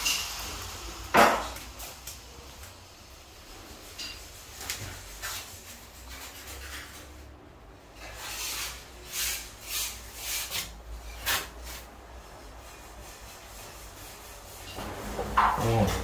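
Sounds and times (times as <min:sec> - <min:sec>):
tile scraping against wall: 0:03.5 - 0:16.0.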